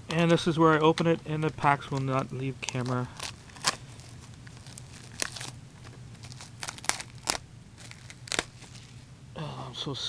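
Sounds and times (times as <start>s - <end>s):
plastic shrink-wrap tearing and crinkling: 2.6s - 9.0s.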